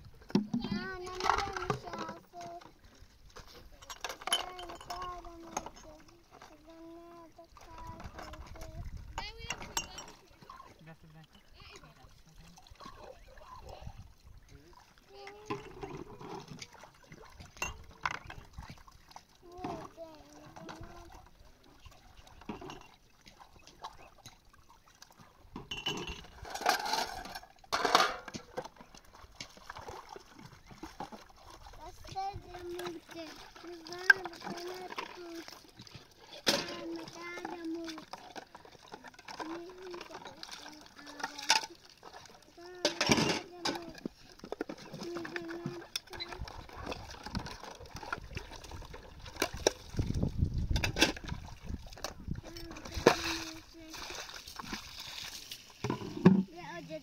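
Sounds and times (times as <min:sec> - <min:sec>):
splashing clatters: 0:00.0 - 0:57.0
water sloshing: 0:00.0 - 0:57.0
steel dishes clinking: 0:03.8 - 0:05.2, 0:09.5 - 0:10.2, 0:25.7 - 0:28.4.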